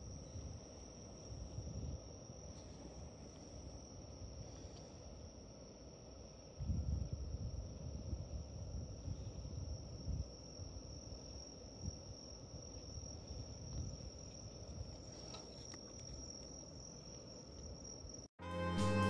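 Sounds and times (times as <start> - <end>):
crickets trilling: 0.0 - 18.3
music: 18.4 - 19.0.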